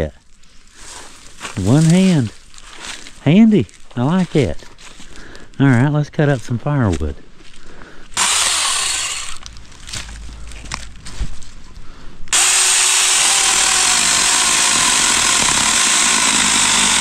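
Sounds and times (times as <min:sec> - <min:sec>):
chainsaw cutting firewood: 0:08.2 - 0:10.0, 0:12.3 - 0:17.0.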